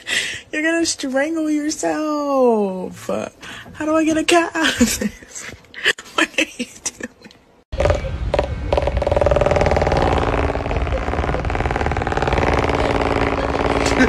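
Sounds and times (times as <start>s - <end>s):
electric fan humming and rattling: 7.8s - 14.0s.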